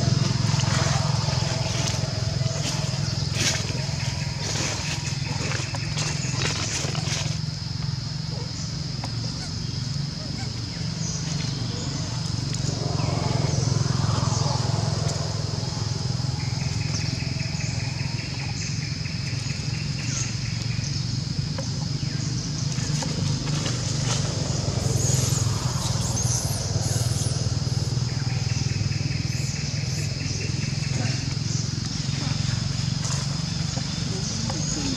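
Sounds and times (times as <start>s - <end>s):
high-pitched whine: 0.0s - 5.7s, 11.6s - 19.7s, 23.8s - 30.4s
low motor hum: 0.0s - 34.9s.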